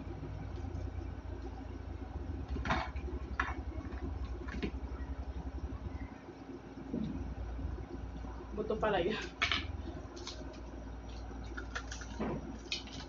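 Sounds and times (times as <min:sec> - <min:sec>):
steady low hum: 0:00.0 - 0:13.0
crispy pork crunching: 0:10.1 - 0:13.0.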